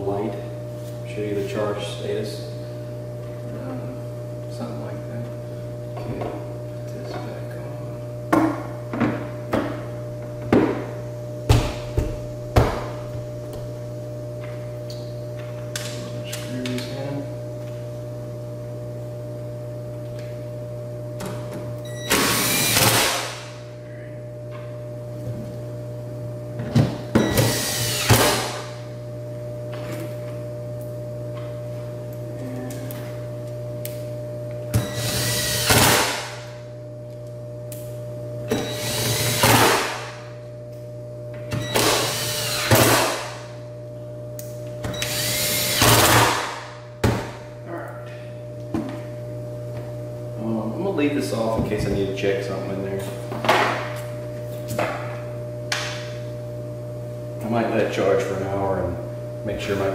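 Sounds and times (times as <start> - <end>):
electrical hum: 0.0 - 59.9
power drill driving screws: 27.4 - 28.3, 41.7 - 43.0.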